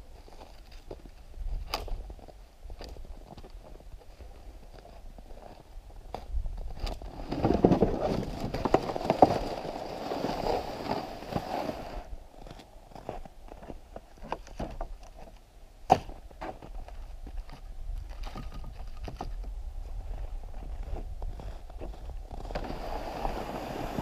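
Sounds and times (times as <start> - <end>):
footsteps crunching in snow: 19.8 - 24.0.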